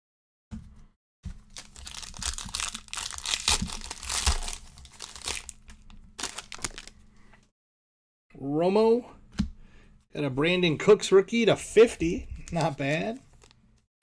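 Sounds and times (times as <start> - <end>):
foil wrapper crinkling and tearing: 1.4 - 7.0, 12.4 - 13.6.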